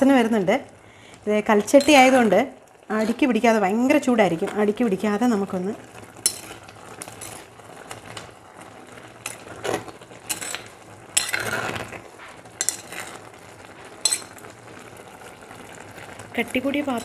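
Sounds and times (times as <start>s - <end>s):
spoon scraping stone pot: 1.7s - 2.3s, 2.9s - 3.3s, 6.2s - 7.5s, 9.2s - 12.0s, 12.6s - 14.4s, 16.8s - 17.0s.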